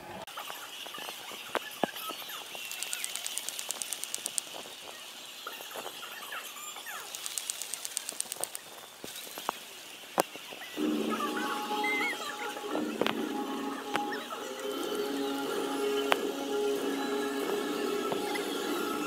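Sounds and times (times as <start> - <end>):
rapid rhythmic high clicking: 0.4 - 19.0
stadium crowd hubbub: 10.7 - 19.0.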